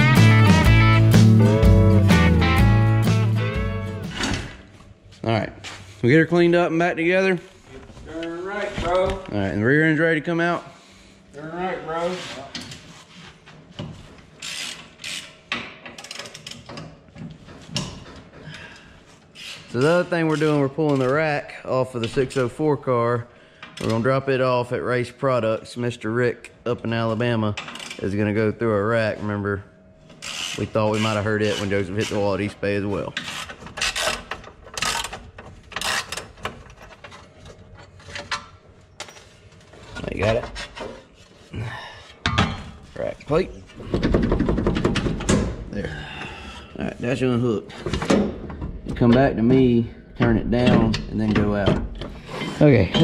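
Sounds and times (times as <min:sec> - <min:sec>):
ratchet wrench clicking: 0:14.4 - 0:15.4.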